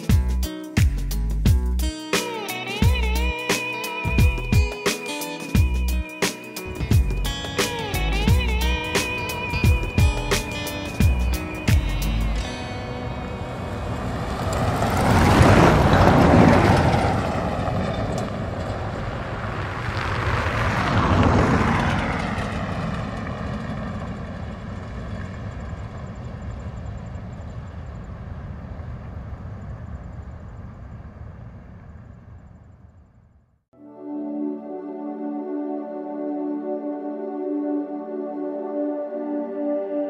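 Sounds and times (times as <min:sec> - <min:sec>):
vehicles passing by: 0:05.6 - 0:32.4.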